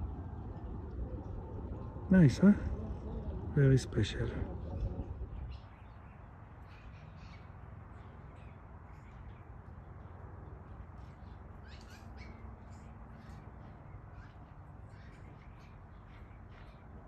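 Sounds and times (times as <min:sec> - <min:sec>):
faint low rumble: 0:00.0 - 0:06.0
birds calling: 0:00.0 - 0:17.0.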